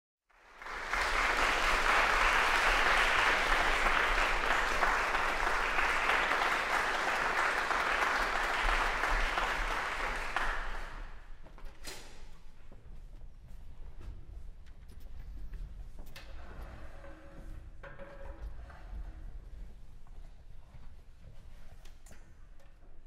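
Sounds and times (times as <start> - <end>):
audience applauding: 0.3 - 11.3.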